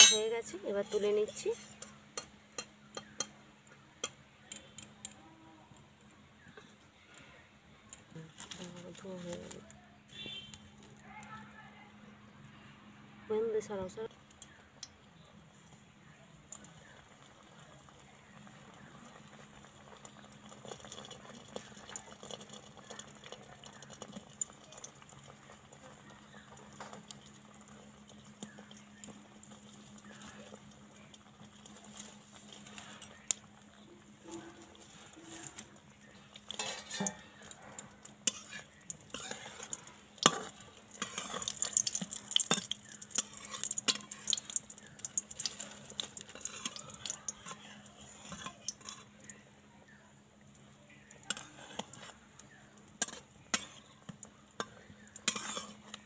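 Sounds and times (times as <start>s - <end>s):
food sizzling in oil: 0.0s - 3.4s, 16.5s - 56.0s
metal spatula scraping pan: 36.4s - 37.4s, 38.2s - 41.6s, 54.6s - 56.0s.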